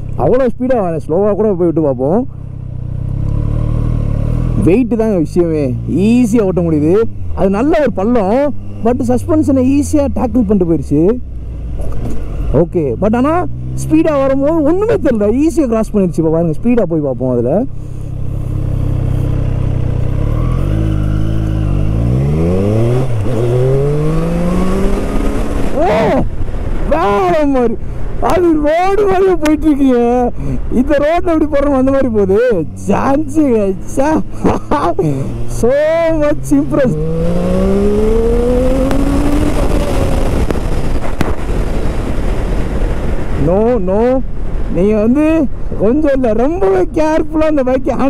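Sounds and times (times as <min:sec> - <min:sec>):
motorcycle engine accelerating: 0:02.3 - 0:16.0, 0:17.8 - 0:27.4, 0:31.0 - 0:44.6
wind rushing on microphone: 0:36.3 - 0:47.1.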